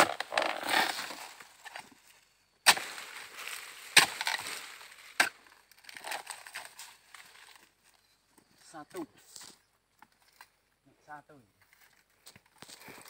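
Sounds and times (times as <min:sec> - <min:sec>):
chisel chopping palm stalks: 0:00.0 - 0:01.9, 0:02.6 - 0:07.2.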